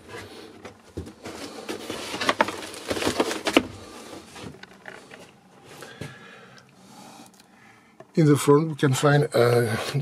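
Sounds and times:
handling knocks and rustles: 0.0s - 6.2s.

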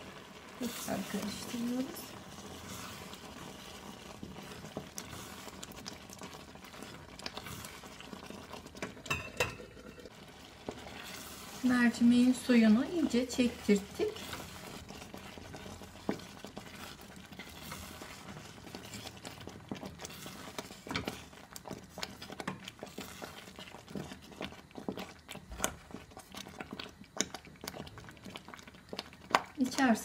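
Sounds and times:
wooden spoon stirring lentils: 0.0s - 9.1s, 10.1s - 30.0s.

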